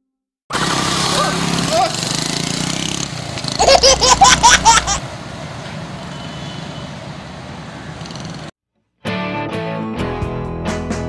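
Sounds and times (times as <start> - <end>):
passing traffic road noise: 0.5 - 8.5.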